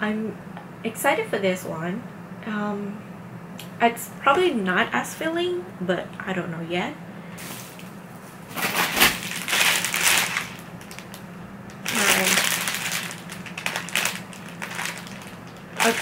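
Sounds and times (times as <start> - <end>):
plastic bags crinkling: 7.4 - 16.0.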